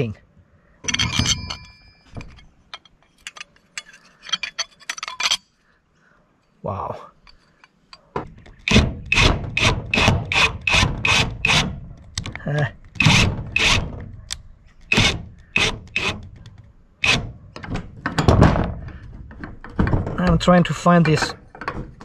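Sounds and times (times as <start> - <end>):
cordless driver grinding screw into metal: 8.7 - 11.7, 13.0 - 13.9, 14.9 - 16.2, 17.0 - 17.2.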